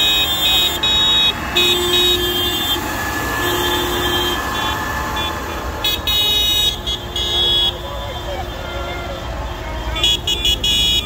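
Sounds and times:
low horn: 0.0 - 7.7
tractors driving past: 0.0 - 11.0.

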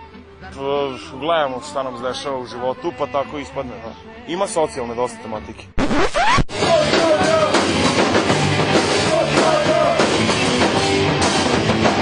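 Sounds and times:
drum kit: 5.8 - 12.0
punk band playing fast: 6.5 - 12.0
man shouting vocals: 6.6 - 7.7, 9.0 - 10.0.

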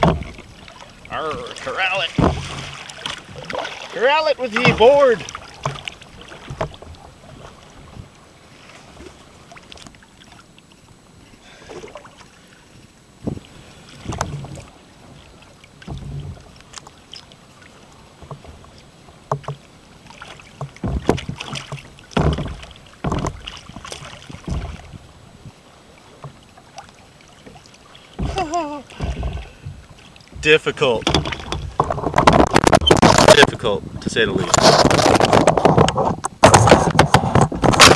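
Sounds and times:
hollow knocks against kayak hull: 0.0 - 0.5, 1.3 - 3.7, 4.5 - 8.2, 13.2 - 14.7, 15.8 - 16.9, 18.2 - 19.7, 20.3 - 25.0, 27.4 - 33.5, 34.5 - 37.9
water splashes: 0.0 - 37.9.

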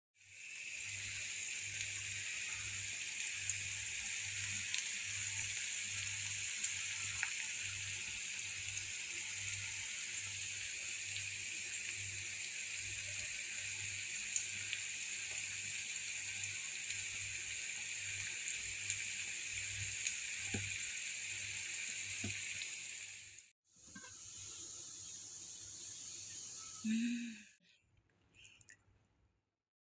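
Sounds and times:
food sizzling in frying pan: 0.2 - 27.0.

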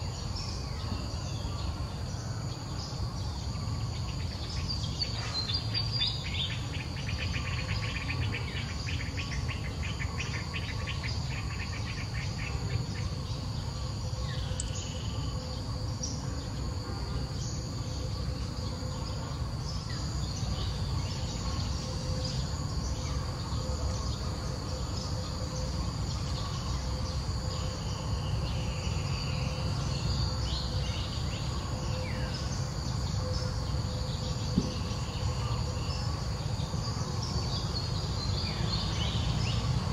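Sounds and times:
insects trilling: 0.0 - 39.9
bird chirps: 2.8 - 18.2.

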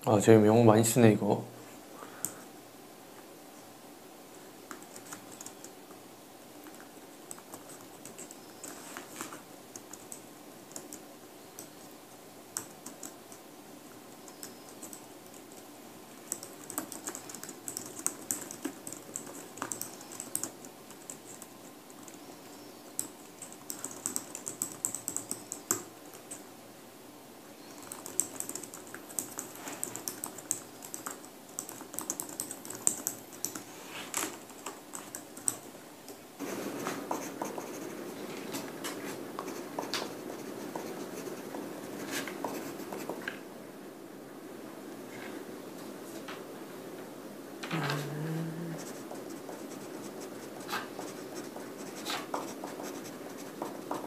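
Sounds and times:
low room hum: 0.0 - 54.0
pen scratching on paper: 36.4 - 38.2, 39.1 - 43.2, 48.8 - 54.0.

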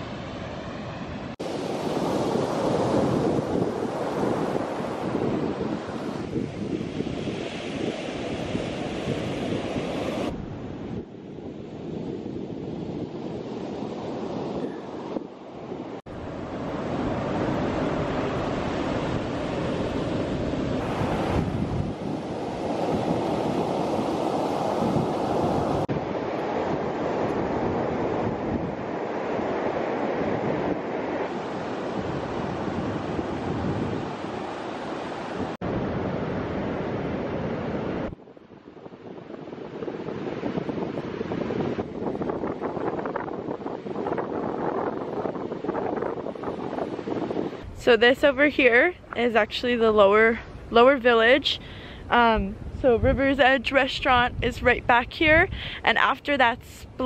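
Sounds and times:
surf breaking on beach: 0.0 - 57.0
wind buffeting microphone: 0.0 - 57.0.

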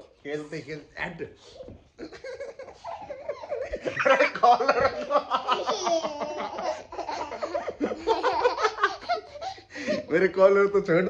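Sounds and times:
child laughing: 2.0 - 9.6
man laughing: 2.0 - 10.1.

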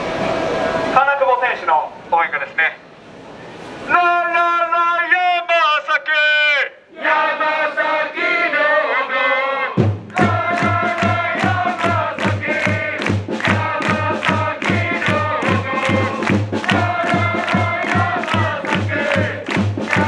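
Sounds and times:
crowd singing a chant: 6.9 - 20.0
drum beating steadily: 9.8 - 20.0.

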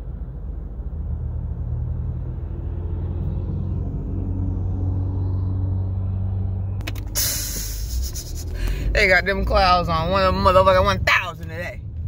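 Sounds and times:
car engine running: 5.8 - 12.0.

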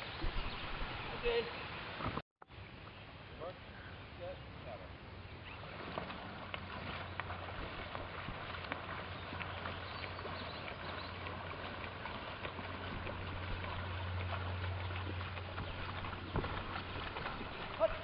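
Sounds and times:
paddles splashing: 4.2 - 18.0
water washing along hull: 5.4 - 18.0.

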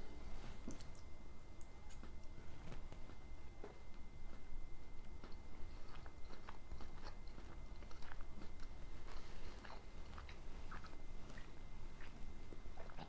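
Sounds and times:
person chewing: 5.0 - 13.0.

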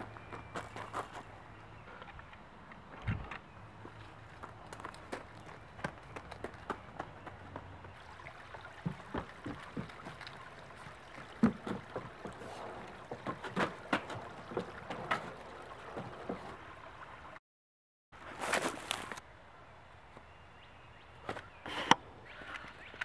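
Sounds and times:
footsteps on wooden footbridge: 0.0 - 1.3, 2.9 - 16.7
footsteps on wood-chip path: 0.0 - 2.1, 3.8 - 8.0, 8.6 - 16.6, 18.2 - 19.2.

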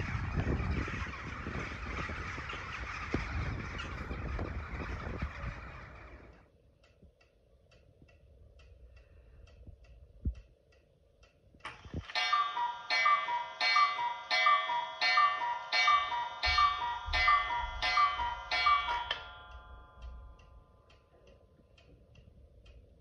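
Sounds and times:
flock of birds chattering: 0.0 - 6.4
wind on microphone: 0.0 - 6.4
clock pendulum ticking: 6.4 - 23.0.

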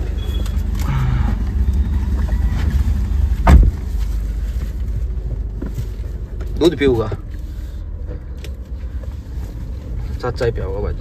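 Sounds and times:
car engine rumbling: 0.0 - 11.0
sharp thump: 3.4 - 3.9.

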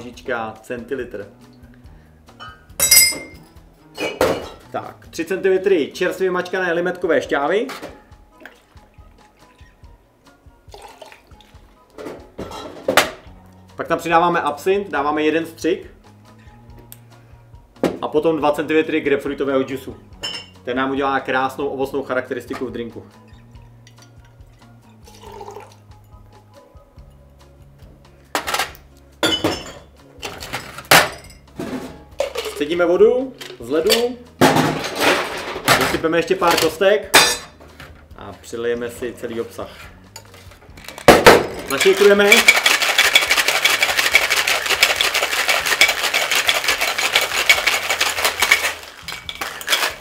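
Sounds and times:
soft background music: 0.0 - 50.0
shaker tins and ice clattering: 10.7 - 11.2, 30.2 - 31.3, 32.2 - 32.8, 40.2 - 50.0
juice trickling into metal tin: 10.7 - 11.7, 24.0 - 25.9, 41.7 - 50.0.

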